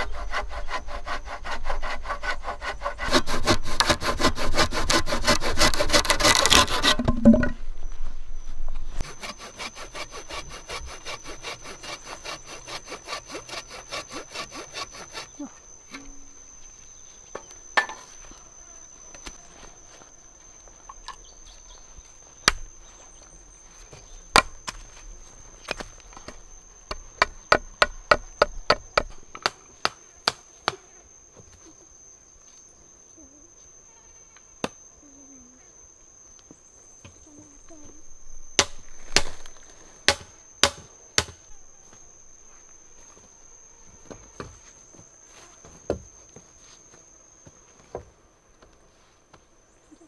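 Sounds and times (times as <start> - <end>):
high-pitched insect drone: 3.6 - 23.4, 30.7 - 47.8
chopping strikes on bamboo: 22.4 - 22.6, 24.3 - 24.8, 27.2 - 30.8, 38.6 - 39.5, 40.1 - 41.4.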